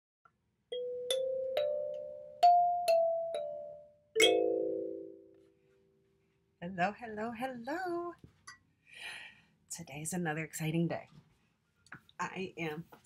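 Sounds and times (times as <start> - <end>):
kalimba notes ringing: 0.7 - 5.4.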